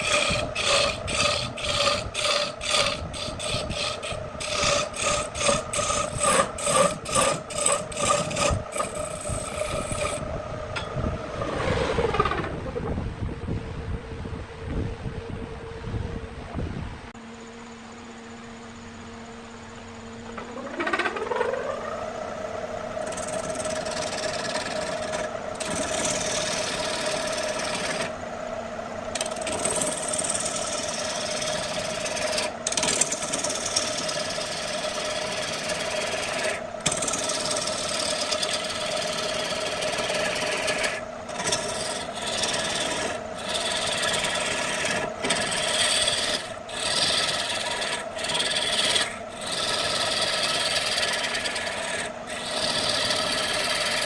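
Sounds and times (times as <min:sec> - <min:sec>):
lathe motor humming: 0:00.0 - 0:12.5, 0:20.2 - 0:54.0
turning tool scraping wood: 0:00.0 - 0:12.5, 0:22.9 - 0:28.2, 0:29.1 - 0:54.0.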